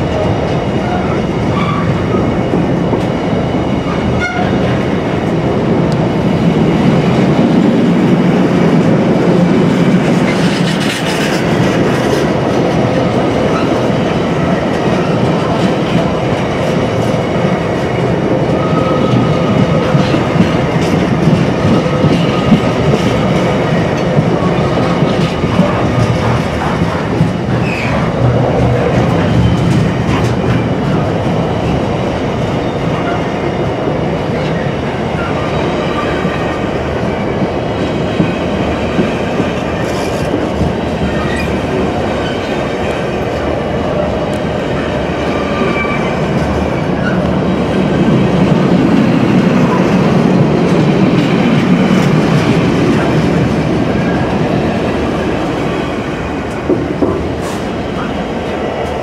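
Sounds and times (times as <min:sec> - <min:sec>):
freight train wheels rumbling: 0:00.0 - 0:59.0
clatter over rail joints: 0:09.7 - 0:17.2, 0:19.1 - 0:31.8.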